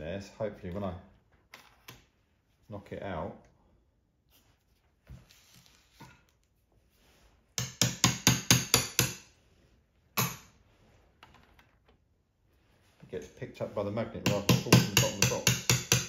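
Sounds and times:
hammer striking metal punch: 0:07.6 - 0:09.2, 0:10.2 - 0:10.5, 0:14.2 - 0:16.0.

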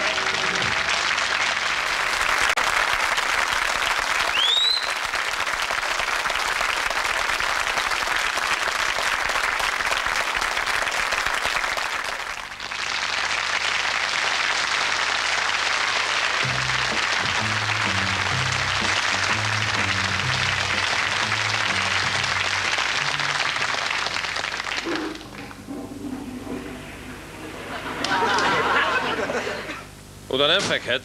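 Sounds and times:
audience applauding: 0:00.0 - 0:25.7, 0:26.6 - 0:29.8
rising whistle: 0:04.3 - 0:05.0.

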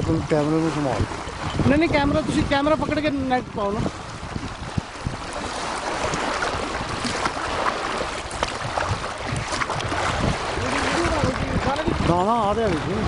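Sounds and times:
water lapping against rocks: 0:00.0 - 0:13.0
wind on microphone: 0:00.0 - 0:13.0.

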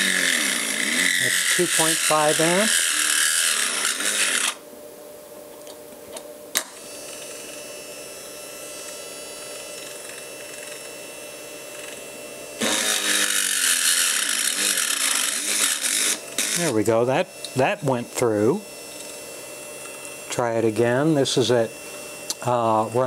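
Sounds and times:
drill press motor running: 0:00.0 - 0:04.6, 0:06.6 - 0:23.0
drilling into metal plate: 0:00.0 - 0:04.6, 0:12.6 - 0:16.8.

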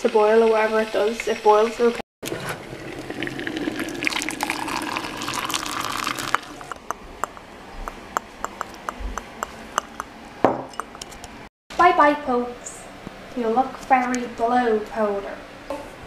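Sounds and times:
water pouring into mug: 0:02.3 - 0:06.8.

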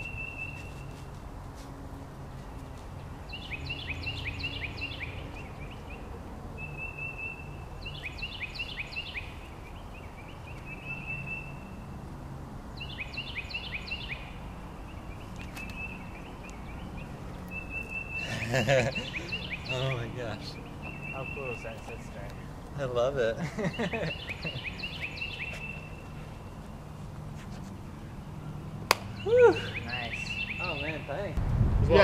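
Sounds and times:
songbird whistling: 0:00.0 - 0:01.0, 0:06.6 - 0:11.8, 0:15.5 - 0:19.9, 0:23.7 - 0:26.7, 0:29.1 - 0:31.1.

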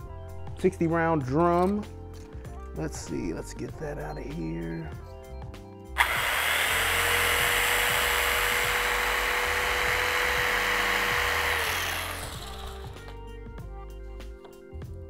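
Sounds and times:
electric knife cutting foam: 0:06.0 - 0:13.2.

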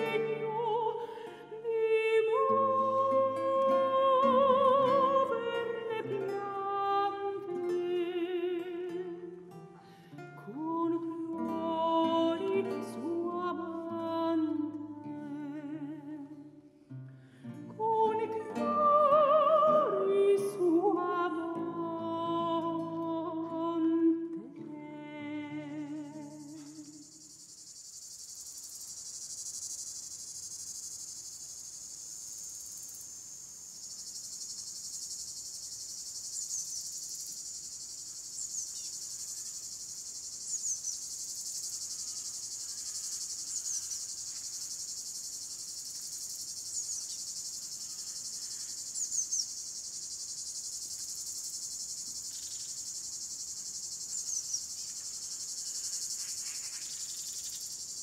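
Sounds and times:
cricket-like chirring: 0:00.0 - 0:00.9, 0:25.6 - 0:58.0.

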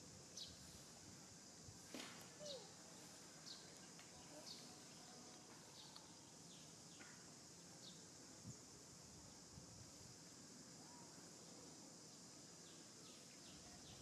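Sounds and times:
insect drone: 0:00.0 - 0:14.0
bird chirping: 0:02.4 - 0:02.7.

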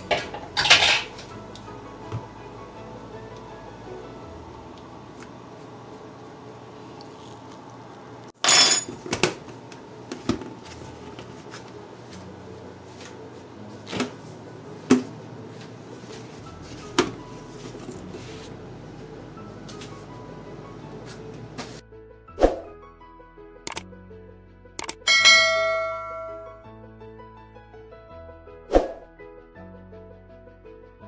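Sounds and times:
low room hum: 0:00.0 - 0:21.8.

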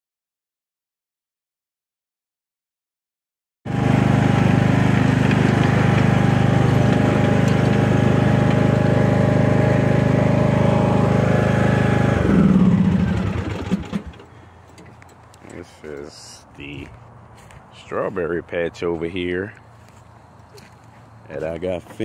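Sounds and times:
lawn mower engine running: 0:03.7 - 0:16.9.

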